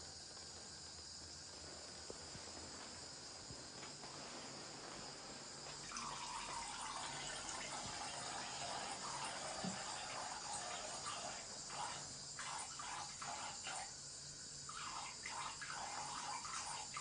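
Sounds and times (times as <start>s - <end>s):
faint steady hiss: 0.0s - 17.0s
liquid trickling into water: 5.8s - 13.9s, 14.7s - 17.0s.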